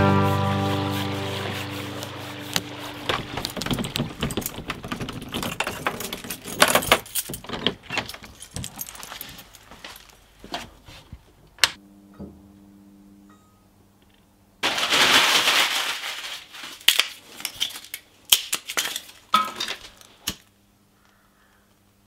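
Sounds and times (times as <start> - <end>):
door opening: 2.5 - 8.9
keys jangling: 3.2 - 10.2.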